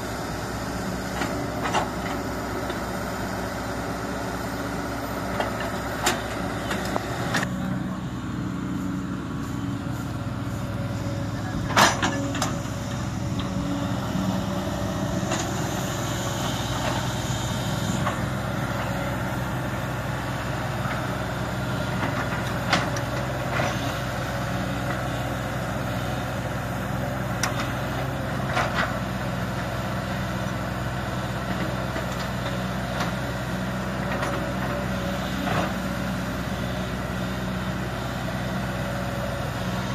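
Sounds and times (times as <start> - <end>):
excavator diesel engine running: 0.0 - 39.9.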